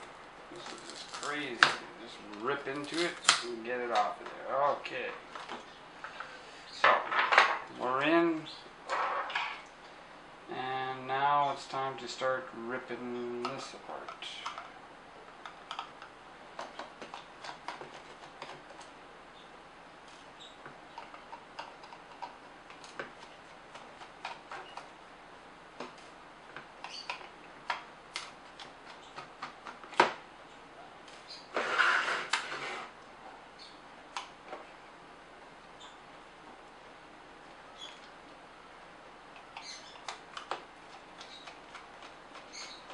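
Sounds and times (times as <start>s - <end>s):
plastic scraping and rustling: 0.5s - 4.3s, 31.5s - 33.0s.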